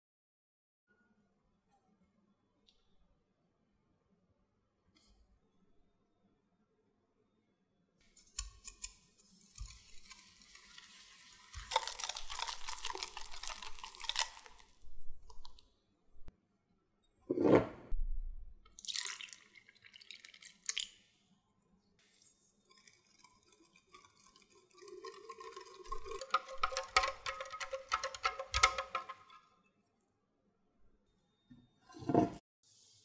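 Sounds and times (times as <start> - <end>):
milk pouring into a bowl: 9.2 - 15.6, 18.7 - 21.1, 22.0 - 29.2
whisk beating in a glass bowl: 22.4 - 29.2.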